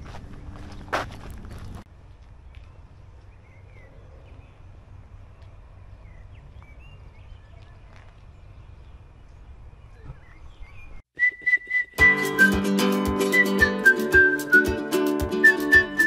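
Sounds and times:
bird chirps: 0:02.5 - 0:12.0
whistled tune over a beat: 0:11.2 - 0:16.0.

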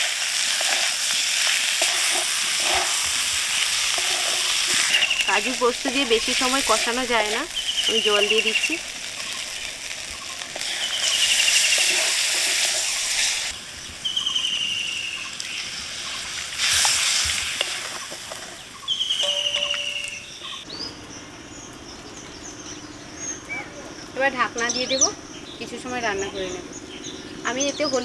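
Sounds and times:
loud hissing: 0:00.0 - 0:20.2
curry sizzling and bubbling: 0:00.0 - 0:20.7.

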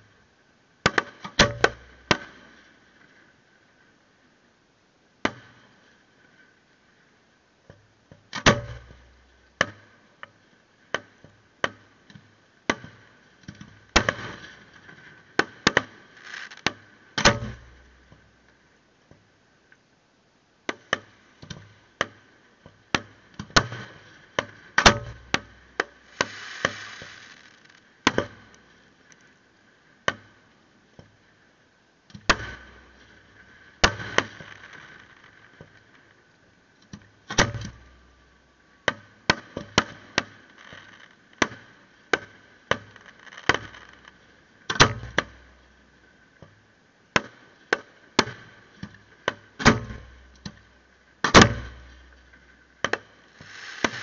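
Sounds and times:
hissing crackle of fireworks: 0:14.0 - 0:17.1, 0:23.7 - 0:27.9, 0:32.4 - 0:36.2, 0:39.4 - 0:41.2, 0:53.1 - 0:54.0
fireworks bangs: 0:16.1 - 0:16.6, 0:26.0 - 0:27.8, 0:53.3 - 0:54.0.

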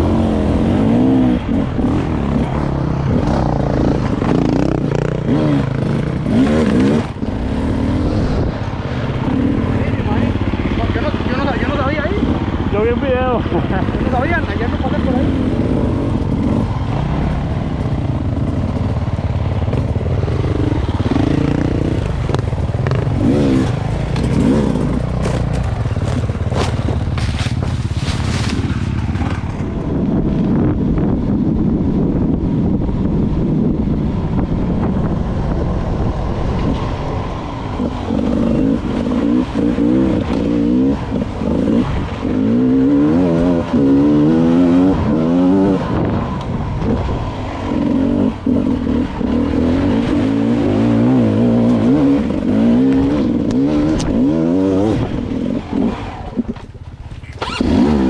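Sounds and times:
motorcycle engine revving: 0:00.0 - 0:58.0
knocks and scrapes: 0:24.1 - 0:29.6.

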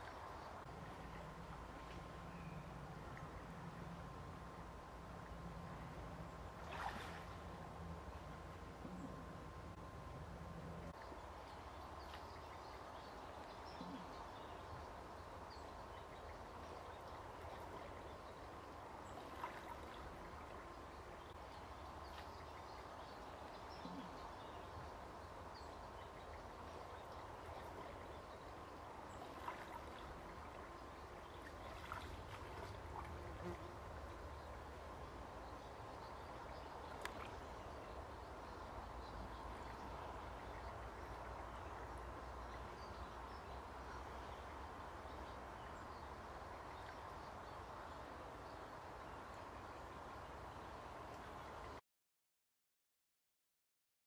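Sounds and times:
faint stream water: 0:00.0 - 0:51.8
soft clicks: 0:37.0 - 0:37.4.

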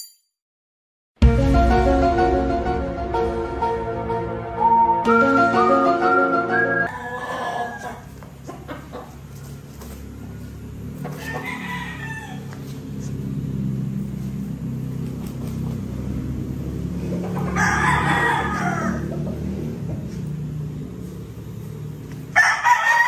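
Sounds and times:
roosters crowing: 0:06.8 - 0:23.0.

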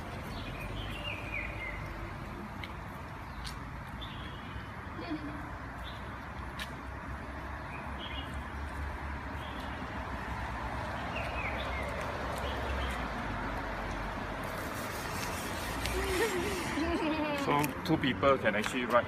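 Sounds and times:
tyres rolling on pavement: 0:05.4 - 0:19.0.

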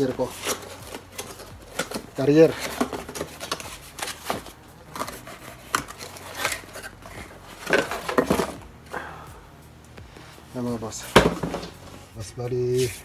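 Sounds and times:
cardboard rustling: 0:00.0 - 0:08.7, 0:10.5 - 0:12.1.

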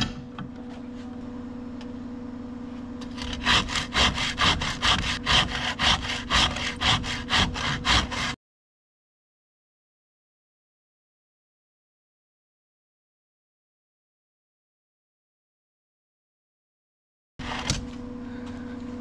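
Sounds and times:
blade scraping wood: 0:03.0 - 0:08.4
faint steady hum: 0:17.4 - 0:19.0.

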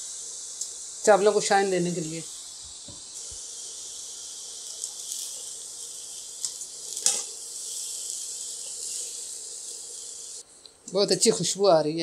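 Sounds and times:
rice sizzling in a wok: 0:00.0 - 0:12.0
spatula scraping and tapping pan: 0:06.4 - 0:07.3.

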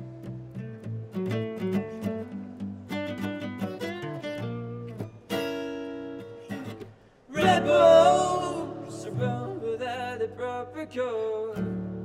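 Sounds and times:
strummed acoustic guitar: 0:00.0 - 0:12.0
man singing: 0:07.3 - 0:12.0.

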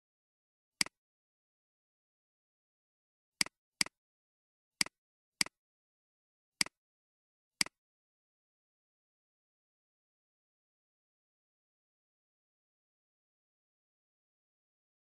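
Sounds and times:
computer mouse clicks: 0:07.6 - 0:07.8.

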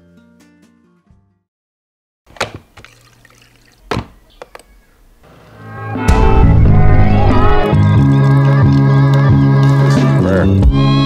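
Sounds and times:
sharp hit: 0:05.6 - 0:07.9
music with bass line and melody: 0:05.6 - 0:11.0.

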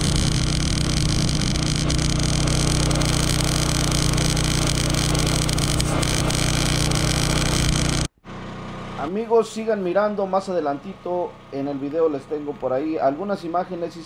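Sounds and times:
welding arc crackling and buzzing: 0:00.0 - 0:08.1.

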